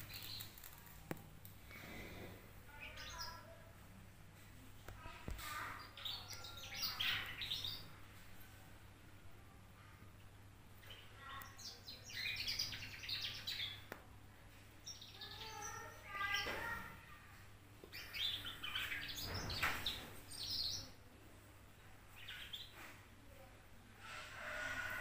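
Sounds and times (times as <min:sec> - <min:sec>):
canary twittering: 0:05.6 - 0:08.0, 0:10.8 - 0:13.9, 0:17.9 - 0:20.9.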